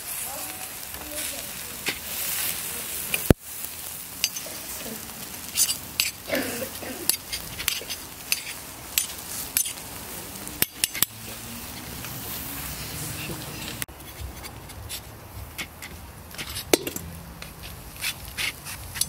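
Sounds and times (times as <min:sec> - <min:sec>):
meat sizzling on grill: 0:00.0 - 0:19.0
knife scraping metal skewers: 0:04.2 - 0:04.6, 0:05.4 - 0:09.9, 0:10.6 - 0:19.0.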